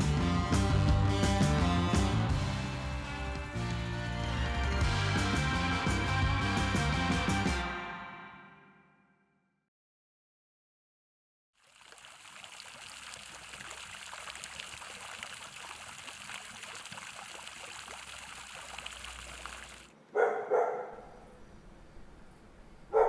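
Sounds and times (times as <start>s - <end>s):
fountain water running: 11.6s - 19.9s
dog barking: 20.1s - 21.3s.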